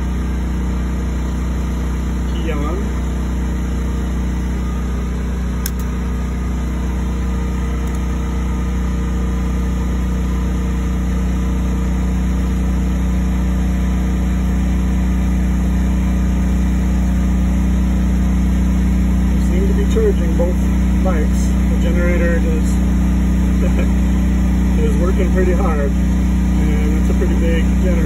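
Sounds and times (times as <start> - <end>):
generator running: 0.0 - 28.0
short click: 5.6 - 6.0, 7.8 - 8.1.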